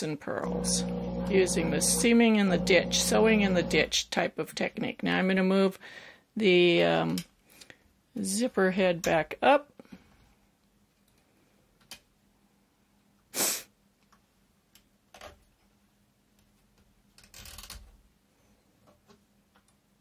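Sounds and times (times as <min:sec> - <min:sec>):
faint steady hum: 0:00.3 - 0:04.1.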